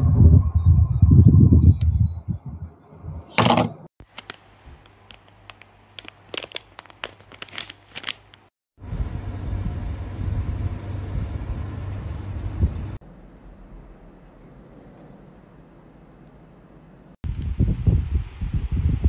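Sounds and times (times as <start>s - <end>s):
plastic packaging crinkling: 4.0s - 8.5s
low rumbling noise: 8.8s - 19.0s.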